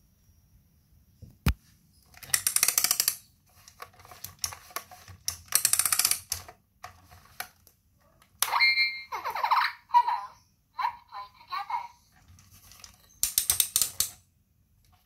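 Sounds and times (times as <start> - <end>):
plastic toy joint clicking: 2.1 - 6.6, 12.8 - 14.2.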